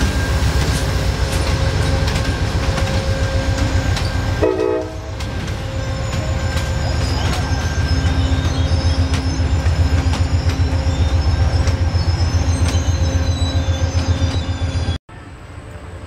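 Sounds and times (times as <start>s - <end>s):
high wheel squeal on rail: 0.0s - 16.0s
train cars rumbling past: 0.0s - 16.0s
wheels clicking over rail joints: 0.6s - 13.1s.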